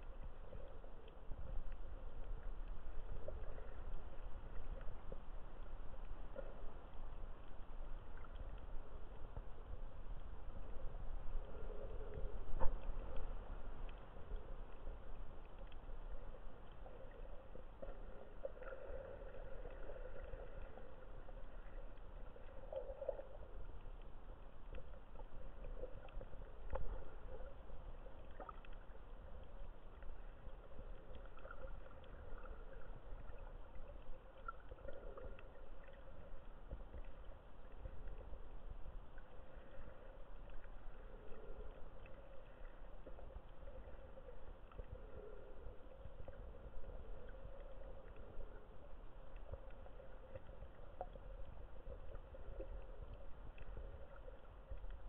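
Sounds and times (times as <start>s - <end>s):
faint clicks: 0.0s - 55.0s
soft gurgling swells: 0.0s - 55.0s
underwater rumble of moving water: 0.0s - 55.0s.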